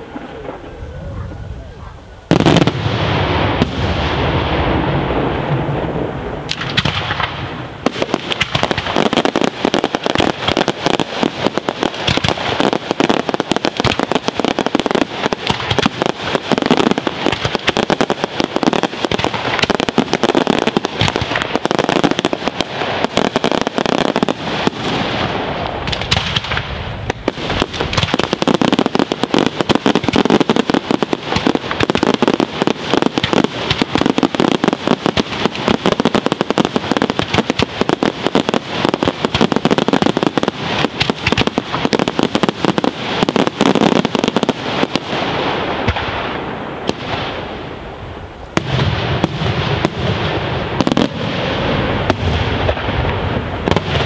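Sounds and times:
dense firework crackle: 0:00.0 - 0:54.0
firework shells bursting: 0:06.4 - 0:45.1.

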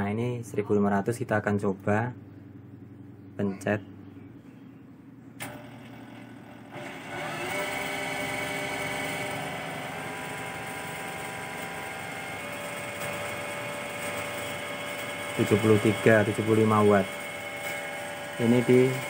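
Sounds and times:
sewing machine running: 0:05.4 - 0:19.0.

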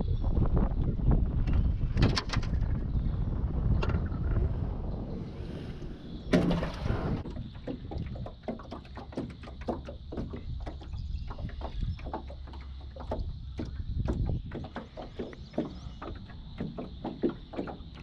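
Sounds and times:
wind rumble on microphone: 0:00.0 - 0:18.0
loud thump: 0:06.3 - 0:07.2.

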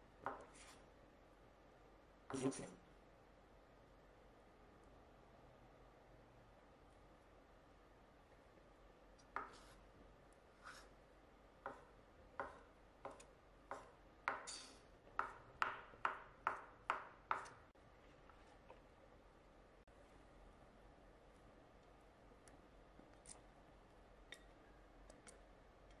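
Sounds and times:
knife chopping on cutting board: 0:11.6 - 0:14.5, 0:15.1 - 0:17.6.

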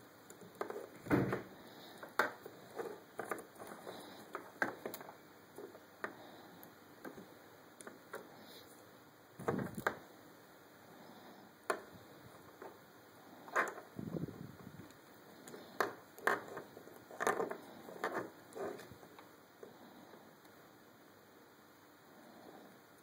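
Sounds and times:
bumps on a desk: 0:01.0 - 0:01.5.

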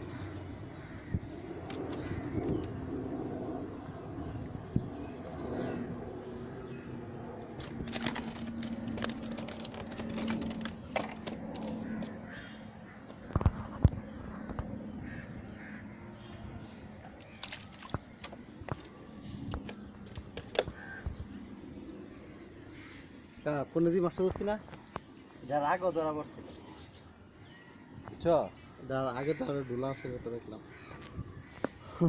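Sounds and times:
crows cawing: 0:00.0 - 0:01.3, 0:08.3 - 0:13.2, 0:14.5 - 0:16.3, 0:20.6 - 0:21.2, 0:22.6 - 0:23.1, 0:28.8 - 0:32.0.

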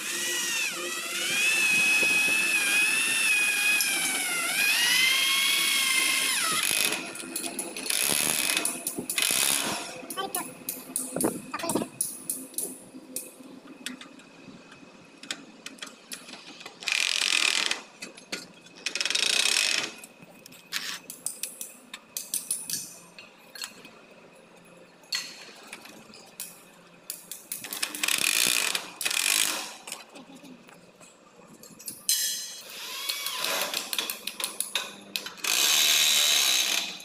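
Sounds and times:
electric drill bursts: 0:00.0 - 0:07.1.

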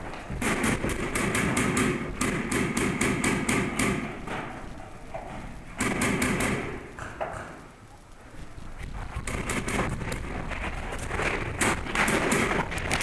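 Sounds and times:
paintball marker firing: 0:00.4 - 0:04.4, 0:05.8 - 0:07.6, 0:09.2 - 0:10.4, 0:11.2 - 0:13.0.

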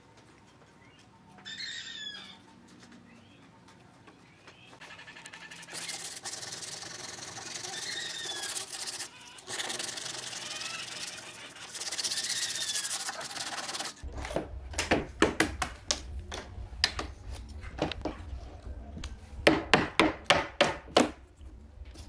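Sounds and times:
sandpaper rubbing on wood: 0:05.4 - 0:14.0.

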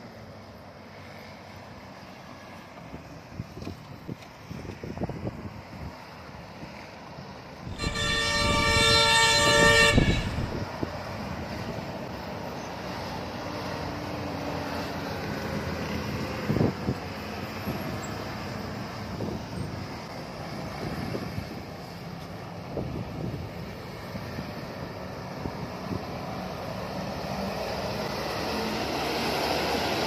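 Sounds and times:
bus engine running: 0:00.0 - 0:30.0
bus air horn blast: 0:07.7 - 0:10.6.

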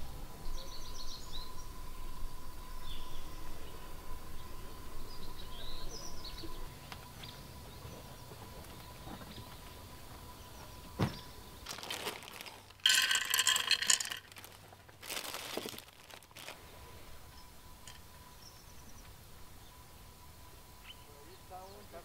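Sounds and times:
small birds chirping: 0:00.4 - 0:12.8, 0:14.5 - 0:22.0
faint steady thin tone: 0:16.6 - 0:22.0.

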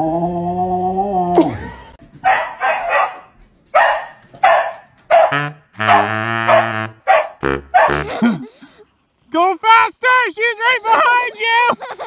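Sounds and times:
long low steady note: 0:00.0 - 0:01.6
dog barking: 0:02.2 - 0:08.0.

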